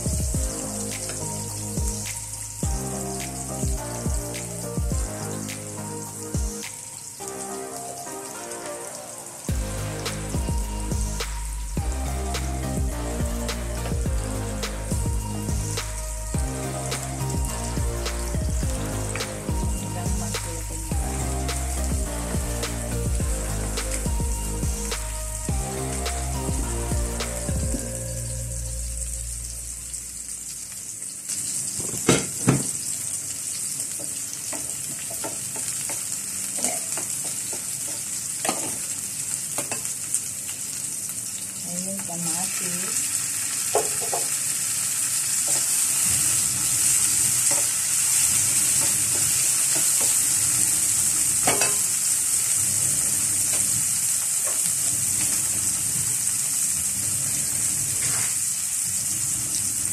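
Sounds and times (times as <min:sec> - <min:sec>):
onions sizzling in frying pan: 0:00.0 - 0:04.0, 0:05.0 - 0:11.8, 0:27.8 - 0:59.9.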